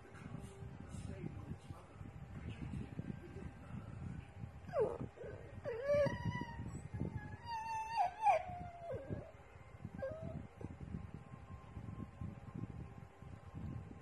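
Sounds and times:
small dog howling: 5.7 - 9.3.

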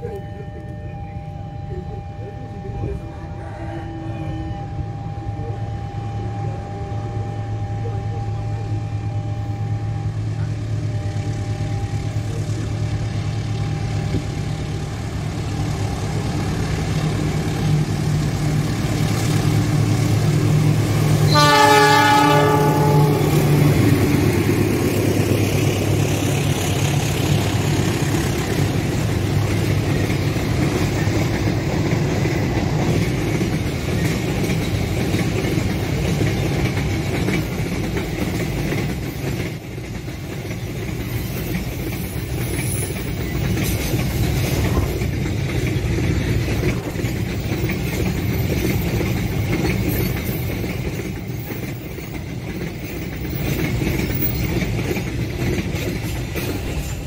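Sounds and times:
diesel locomotive droning: 0.0 - 57.0
train horn: 0.2 - 12.8, 19.4 - 24.8
train wheels clattering on rails: 10.3 - 57.0.

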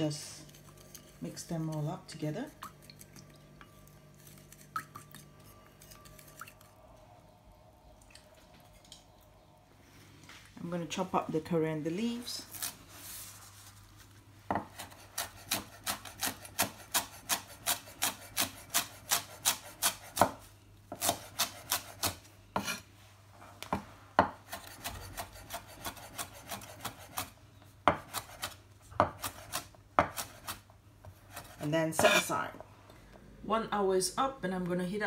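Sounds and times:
knife chopping on wooden board: 14.5 - 22.8, 27.9 - 32.2.

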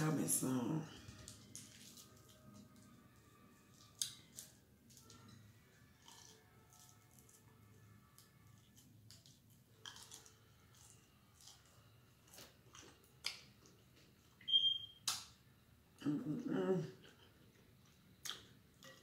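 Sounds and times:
person chewing food: 1.1 - 2.9, 3.6 - 14.4, 17.0 - 19.0.

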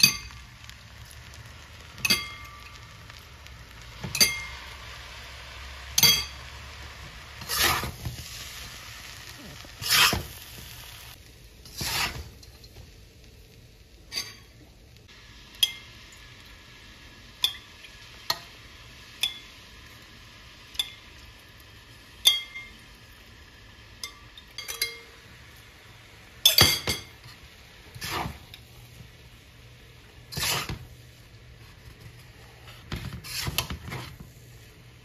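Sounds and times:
metal spatula striking steel pan: 2.0 - 2.9, 4.0 - 4.7, 6.0 - 6.5.

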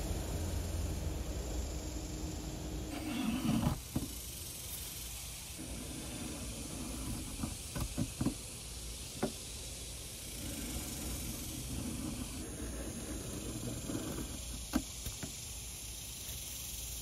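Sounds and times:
plane blade cutting wood: 5.6 - 8.1.

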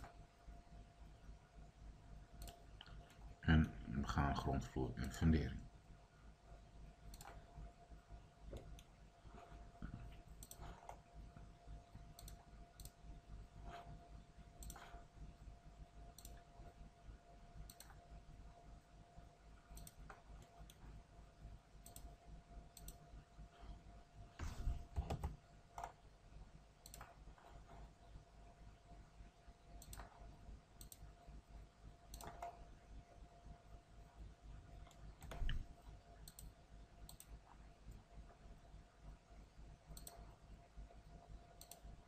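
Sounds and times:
faint steady hum and whine: 0.0 - 42.0
computer mouse clicking: 2.3 - 3.3, 7.1 - 7.5, 8.5 - 11.2, 11.9 - 13.0, 13.6 - 15.1, 16.1 - 16.5, 17.6 - 18.1, 19.7 - 21.0, 21.8 - 23.1, 24.8 - 26.0, 26.8 - 28.0, 29.7 - 31.2, 32.0 - 32.7, 34.8 - 38.0, 39.9 - 40.4, 41.0 - 42.0.

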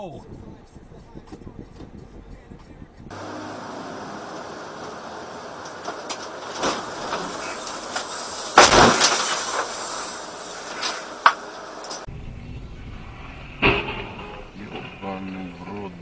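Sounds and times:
road and engine noise in cab: 0.0 - 16.0
loud crunching crash impact: 3.1 - 11.5.

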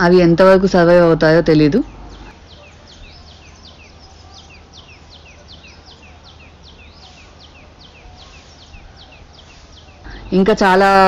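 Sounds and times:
chicks peeping: 1.9 - 10.3.

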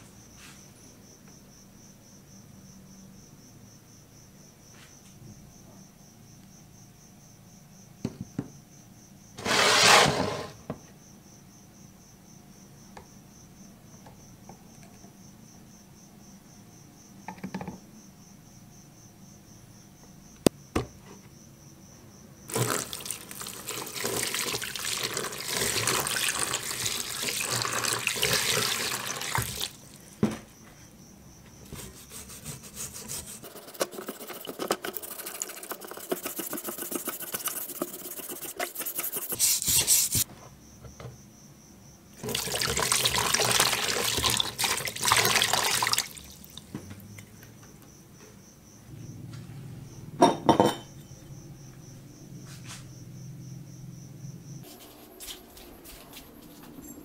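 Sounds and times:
water sloshing in plastic tub: 22.5 - 30.4, 42.2 - 46.7.

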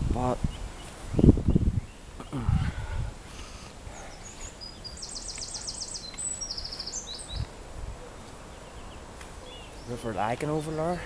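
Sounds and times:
wind rumble: 0.0 - 5.3
bird chirps: 3.9 - 11.0
small songbird trilling: 4.2 - 7.5.

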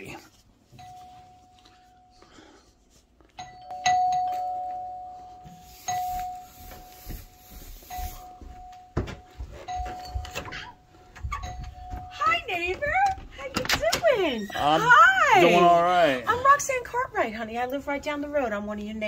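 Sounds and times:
doorbell chime: 0.7 - 2.4, 3.4 - 7.1, 7.8 - 12.8
footsteps on stairs: 5.4 - 13.9.

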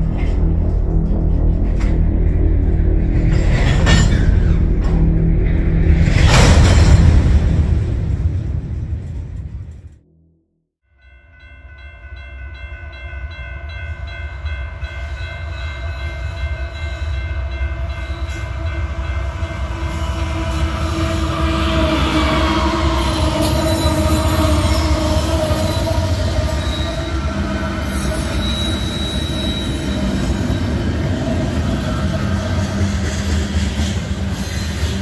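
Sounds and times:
music: 0.0 - 9.1
train rumble: 0.0 - 10.0, 11.0 - 35.0
train brakes squealing: 14.9 - 35.0.

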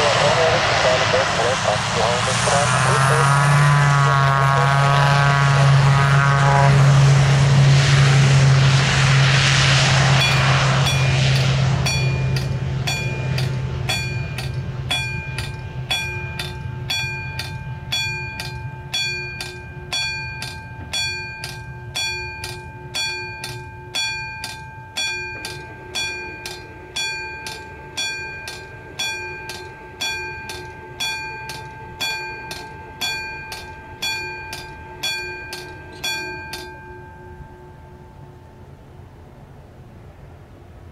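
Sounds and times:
turboprop engine drone: 0.0 - 40.9
bells ringing: 10.0 - 39.4.

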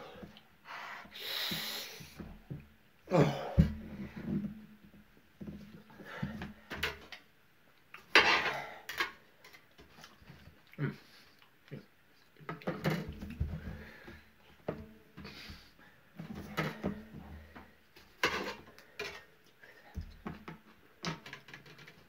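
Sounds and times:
sharp breaths: 0.6 - 2.2
man groaning in pain: 3.1 - 3.7.

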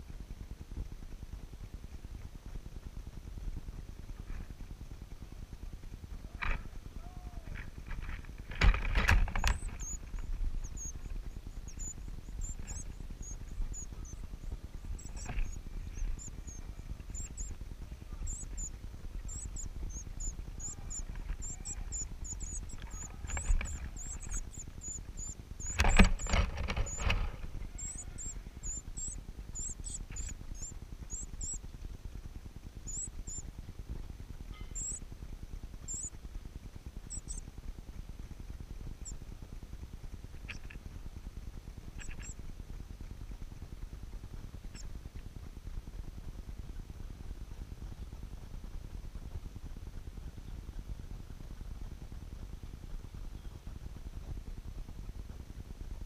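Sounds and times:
rustling and bumping: 7.5 - 11.4
nestlings begging cheeps: 8.6 - 31.8, 32.8 - 33.5, 34.6 - 35.1, 35.7 - 36.2, 37.0 - 37.5, 41.9 - 42.4.

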